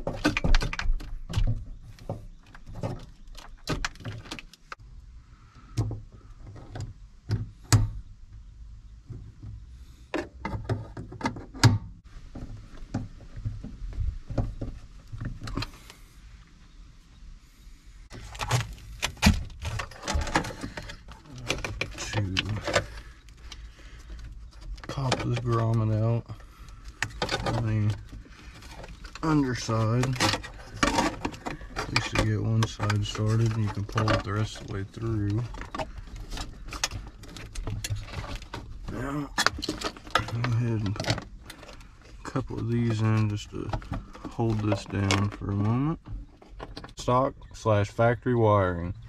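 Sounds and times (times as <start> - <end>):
hands handling tools and parts: 18.1 - 47.0.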